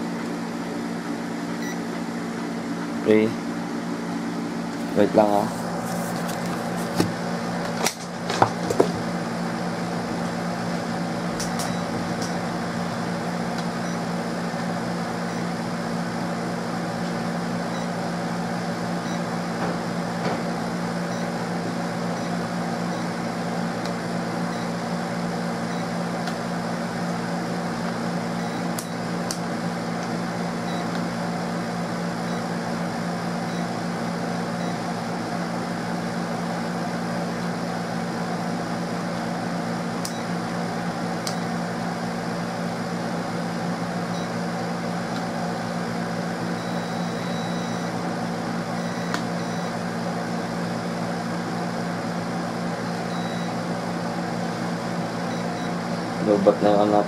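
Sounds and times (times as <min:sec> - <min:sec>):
electric fan humming: 0:00.0 - 0:57.0.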